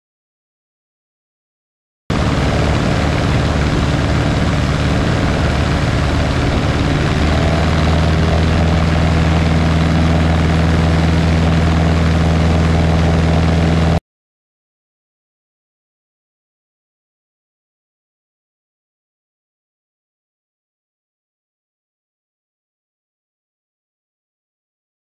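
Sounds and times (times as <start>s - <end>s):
light aircraft engine droning: 2.1s - 14.0s
wind noise: 2.1s - 14.0s.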